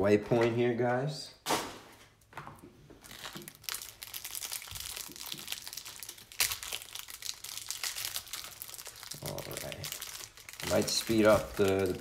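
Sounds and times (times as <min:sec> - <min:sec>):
plastic wrapping crinkling and tearing: 0:03.0 - 0:12.0.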